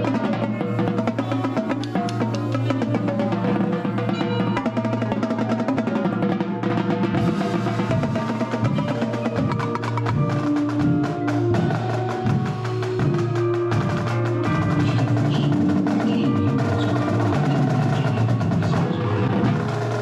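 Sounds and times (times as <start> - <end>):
marimba notes: 0.0 - 6.4, 7.1 - 20.0
tenor drums rapid strokes: 0.0 - 20.0
vibraphone notes: 7.3 - 18.6.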